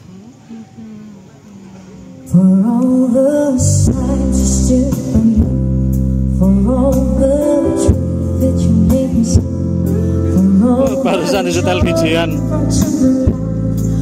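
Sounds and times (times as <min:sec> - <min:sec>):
song over sound system: 0:10.6 - 0:12.8.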